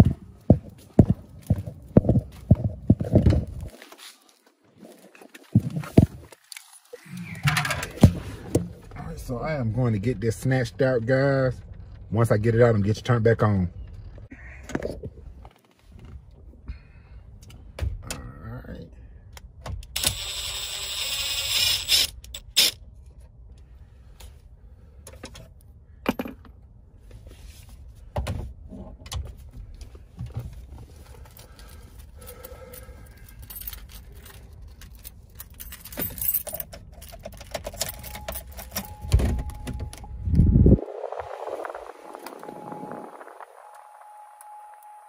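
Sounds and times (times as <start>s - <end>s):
cordless drill running: 20.0s - 22.1s.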